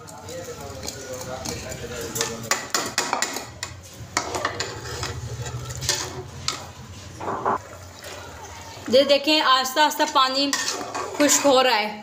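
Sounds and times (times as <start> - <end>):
water boiling: 7.6 - 12.0.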